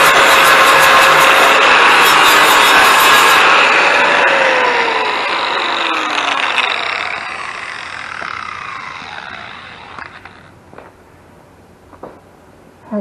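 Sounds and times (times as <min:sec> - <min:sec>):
electric angle grinder winding down: 0:00.0 - 0:10.9.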